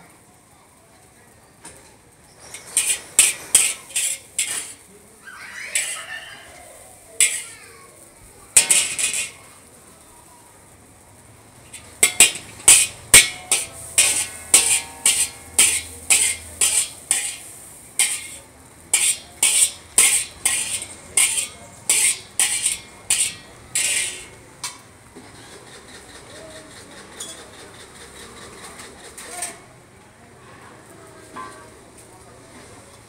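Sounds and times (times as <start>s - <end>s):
metal spatula clanging on wok: 2.5s - 4.9s, 5.7s - 6.6s, 7.2s - 7.7s, 8.6s - 9.5s, 11.6s - 24.9s.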